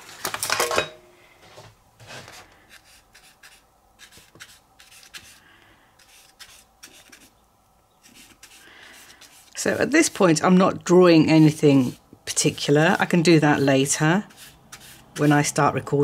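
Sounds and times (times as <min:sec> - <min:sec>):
paintbrush brushing on paper: 0:02.1 - 0:05.4, 0:06.0 - 0:07.4, 0:08.0 - 0:15.6.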